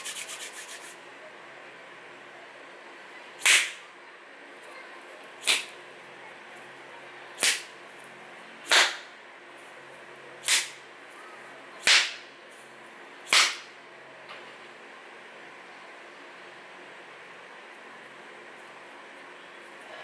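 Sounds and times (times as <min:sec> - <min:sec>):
short sharp cracks with hiss: 0:03.4 - 0:03.8, 0:05.4 - 0:05.8, 0:07.4 - 0:07.7, 0:08.7 - 0:09.1, 0:10.4 - 0:10.8, 0:11.8 - 0:12.2, 0:13.3 - 0:13.7.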